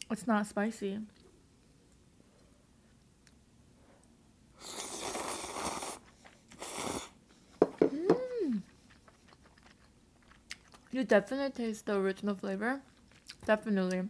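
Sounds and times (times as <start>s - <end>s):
noodles slurped: 4.6s - 7.2s
person humming: 7.8s - 8.7s.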